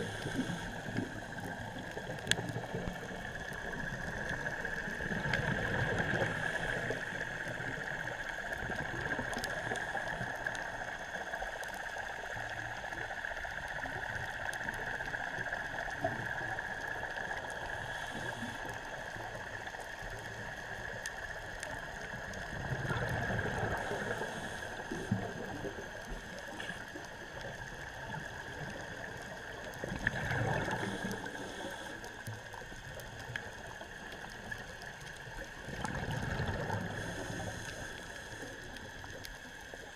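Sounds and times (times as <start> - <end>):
gurgling exhaled bubbles: 0.0 - 10.6, 21.8 - 39.9
faint scattered clicks: 0.0 - 39.9
steady underwater hiss: 0.0 - 39.9.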